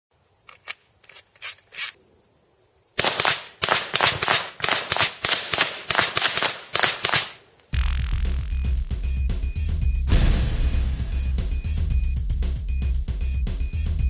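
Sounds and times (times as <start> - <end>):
rifle firing rapid shots: 3.0 - 7.4.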